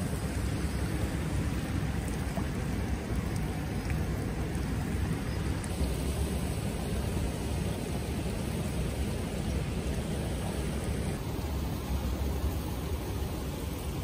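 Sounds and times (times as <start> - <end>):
flowing water rushing: 0.0 - 14.0
low unsteady rumble: 0.0 - 14.0.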